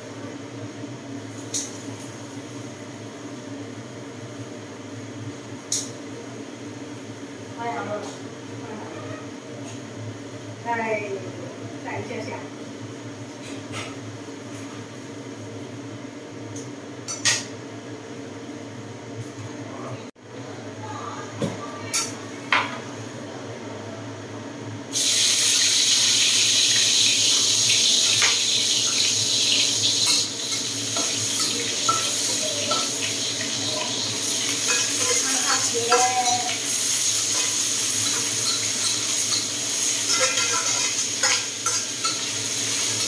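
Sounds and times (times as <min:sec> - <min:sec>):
vegetables sizzling in a wok: 0:00.0 - 0:19.4, 0:24.8 - 0:43.0.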